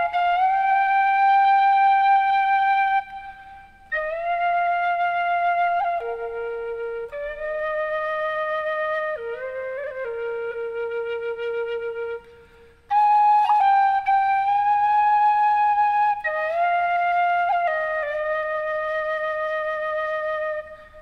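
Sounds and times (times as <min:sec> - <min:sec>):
flute-like wind instrument: 0:00.0 - 0:21.0.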